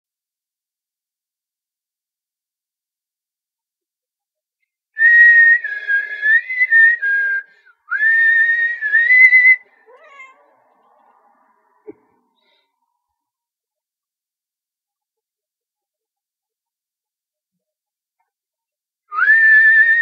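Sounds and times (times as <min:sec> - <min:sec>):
person whistling: 0:05.0 - 0:09.6, 0:19.1 - 0:20.0
kitten meowing: 0:09.9 - 0:10.5.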